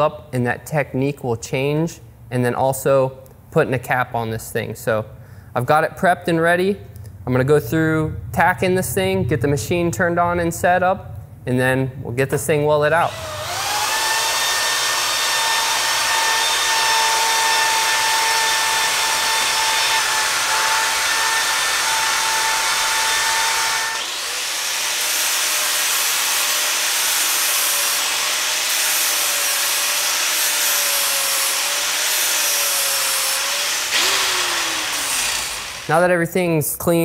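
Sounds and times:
angle grinder grinding pipe: 0:13.0 - 0:36.0
drill grinding disc on steel pipe: 0:13.0 - 0:36.0.

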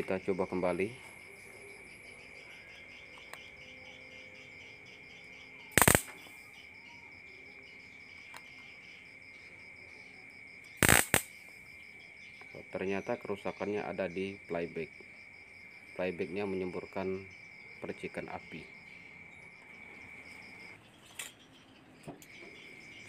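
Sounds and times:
electric spark snaps: 0:05.7 - 0:06.4, 0:10.8 - 0:11.5
faint ticks: 0:05.8 - 0:06.3, 0:10.6 - 0:11.6.

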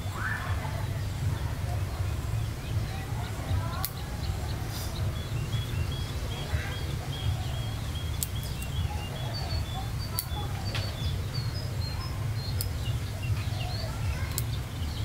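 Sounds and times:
bird chirping: 0:00.0 - 0:15.0
scissors snipping twigs: 0:03.7 - 0:04.0, 0:08.1 - 0:08.8, 0:10.1 - 0:11.0, 0:14.3 - 0:14.6.

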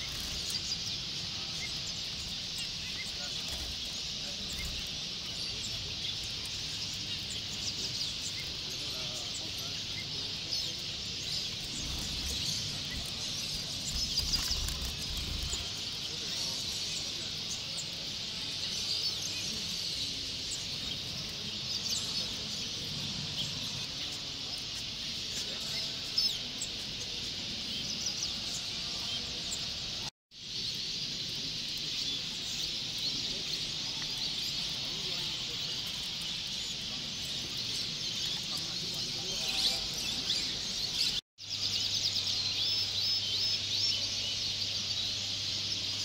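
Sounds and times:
caged small birds chirping: 0:00.0 - 0:46.0.

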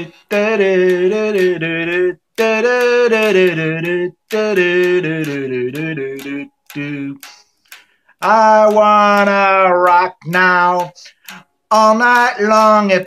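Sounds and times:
man singing without words: 0:00.0 - 0:13.0
man breathing: 0:07.4 - 0:08.2, 0:11.0 - 0:11.6.

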